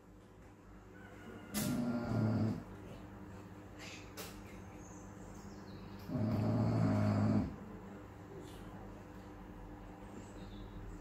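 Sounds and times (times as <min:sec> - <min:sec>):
dog snoring: 0:01.5 - 0:02.7, 0:06.1 - 0:07.6.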